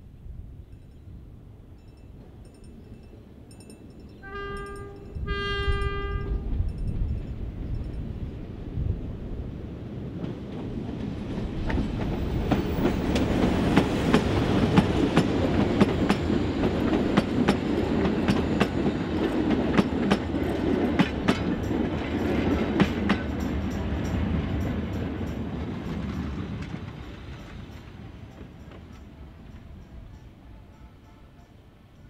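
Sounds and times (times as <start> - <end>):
train passing: 1.1 - 32.0.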